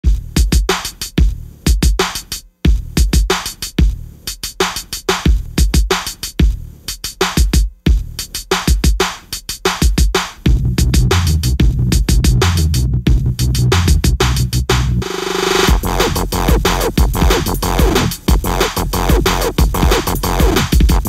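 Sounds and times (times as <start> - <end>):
electronic music with heavy beat: 7.3 - 21.0.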